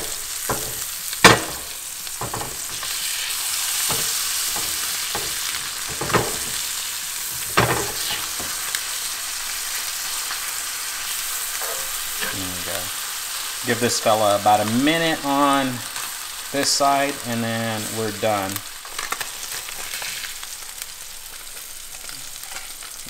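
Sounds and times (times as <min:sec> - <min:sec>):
fish sizzling in pan: 0:00.0 - 0:23.0
metal spatula scraping pan: 0:07.3 - 0:08.6, 0:11.5 - 0:12.8.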